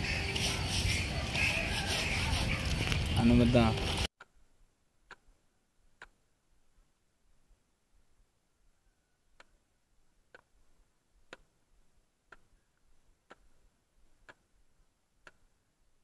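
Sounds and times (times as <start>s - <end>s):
faint ticking clicks: 11.3s - 11.5s, 12.3s - 12.5s, 14.2s - 14.5s.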